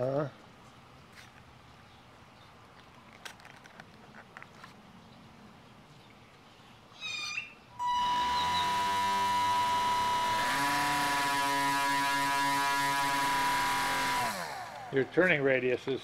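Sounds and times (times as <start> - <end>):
electric motor buzzing whine: 7.8 - 15.2.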